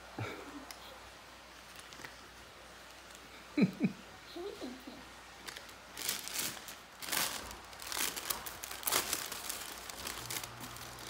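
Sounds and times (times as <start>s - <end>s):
tissue paper rustling and crinkling: 5.4s - 11.0s.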